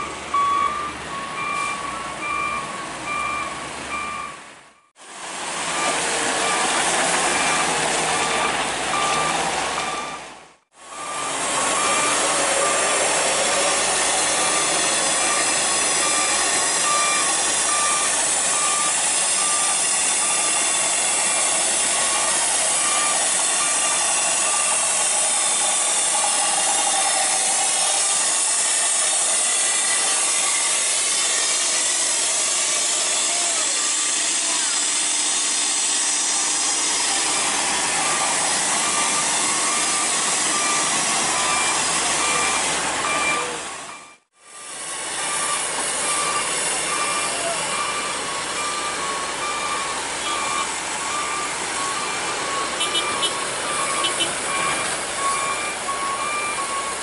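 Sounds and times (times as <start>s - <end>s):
backhoe loader running: 0.0s - 57.0s
loaded truck running: 0.0s - 57.0s
regular beeping: 38.8s - 44.3s, 45.3s - 57.0s.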